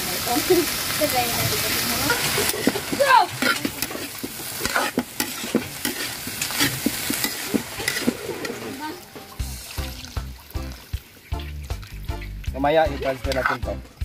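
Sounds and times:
food sizzling in hot oil: 0:00.0 - 0:14.0
water pouring into a wok: 0:00.0 - 0:14.0
metal ladle scraping a wok: 0:02.1 - 0:09.4, 0:12.9 - 0:13.8.

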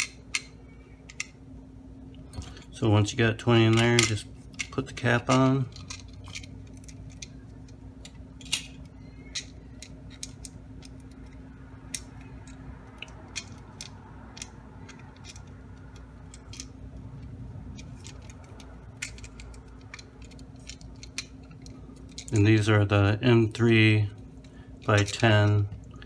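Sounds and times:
steady low hum: 0:00.0 - 0:26.0
plastic parts clicking and tapping: 0:03.6 - 0:16.7, 0:17.7 - 0:22.5, 0:24.8 - 0:25.9
small screws being handled: 0:03.6 - 0:22.6.

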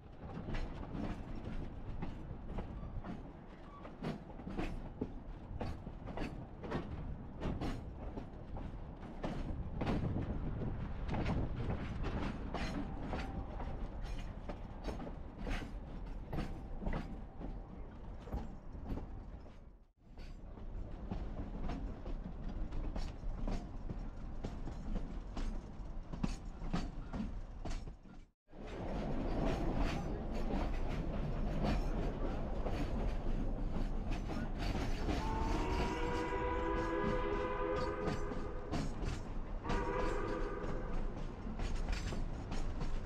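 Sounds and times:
train wheels clicking over rail joints: 0:00.3 - 0:43.0
steam whistle blowing: 0:35.2 - 0:38.6, 0:39.6 - 0:40.9.

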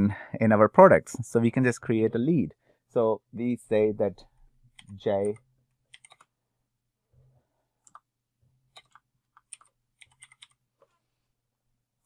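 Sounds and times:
faint keyboard keystrokes: 0:04.7 - 0:06.3, 0:08.7 - 0:11.0.

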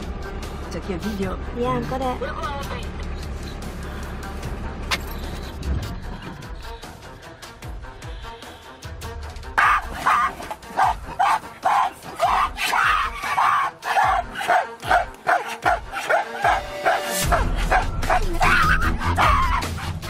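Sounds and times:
background music: 0:00.0 - 0:20.0
short barking animal calls: 0:09.6 - 0:19.9.

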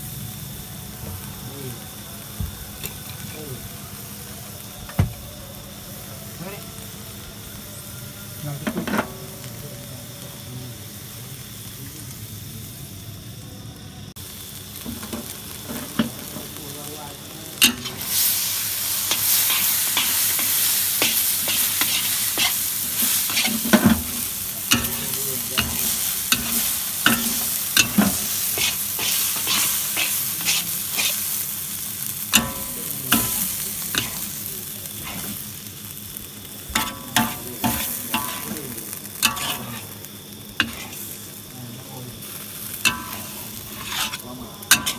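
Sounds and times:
noodles sizzling in a wok: 0:00.0 - 0:44.9
metal spatula scraping a wok: 0:17.6 - 0:31.5, 0:32.2 - 0:35.5, 0:36.7 - 0:40.0, 0:40.6 - 0:41.3, 0:42.7 - 0:44.9.

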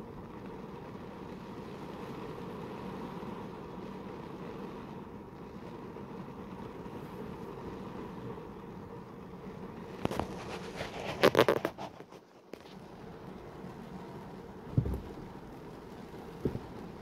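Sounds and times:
car interior hum: 0:00.0 - 0:10.8, 0:12.6 - 0:17.0.

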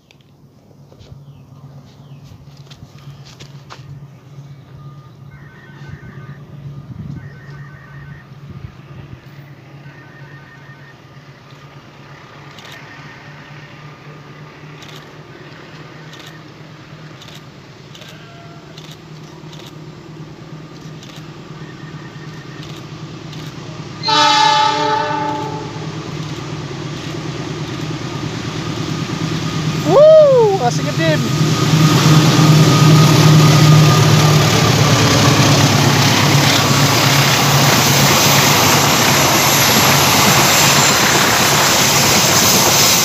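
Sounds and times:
locomotive rumble: 0:00.2 - 0:43.0
locomotive horn blast: 0:09.8 - 0:11.2, 0:24.0 - 0:26.0, 0:31.6 - 0:36.7.

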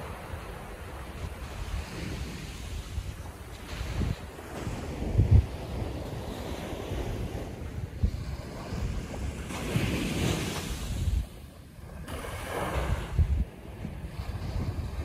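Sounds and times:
ocean waves breaking: 0:00.0 - 0:15.0
wind buffeting microphone: 0:00.0 - 0:15.0.

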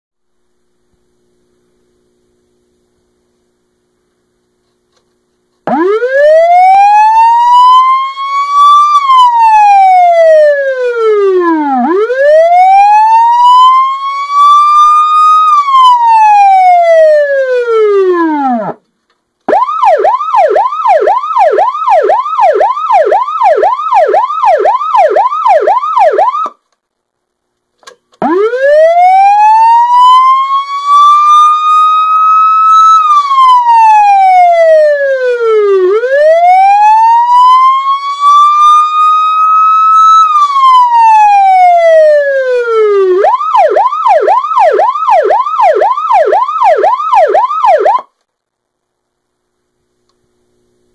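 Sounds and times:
electronic siren wailing and yelping: 0:05.7 - 0:18.8, 0:19.5 - 0:26.6, 0:28.2 - 0:48.1.

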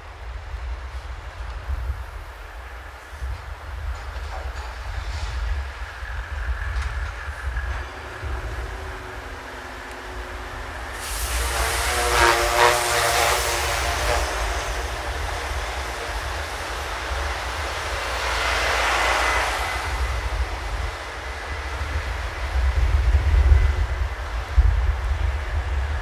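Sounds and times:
rail vehicle passing: 0:00.0 - 0:26.0
pitched squeal or horn tone: 0:10.3 - 0:16.2.

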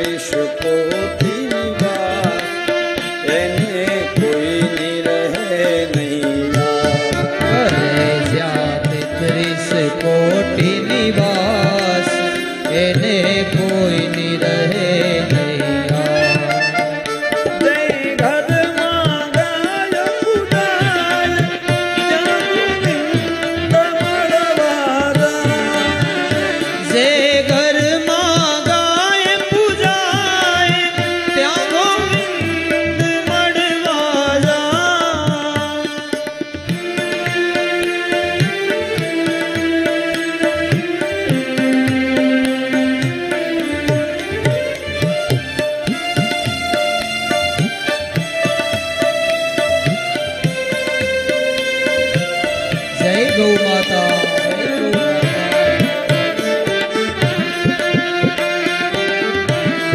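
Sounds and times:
tabla rhythm: 0:00.0 - 0:59.9
violin melody: 0:00.0 - 0:59.9.

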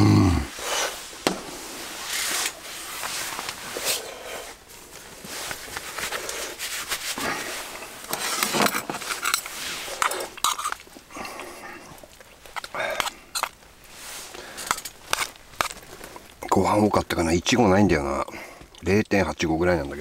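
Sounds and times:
padded jacket rustling: 0:00.6 - 0:10.0.

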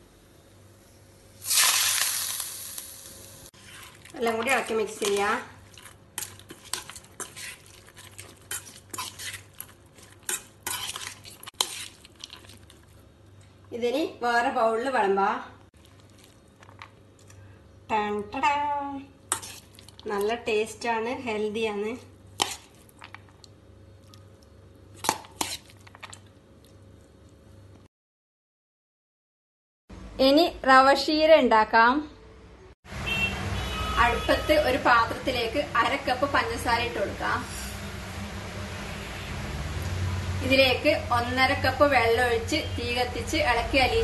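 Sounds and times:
spoon stirring in steel bowl: 0:03.6 - 0:13.0, 0:19.3 - 0:20.4, 0:22.4 - 0:23.3, 0:25.0 - 0:26.3.

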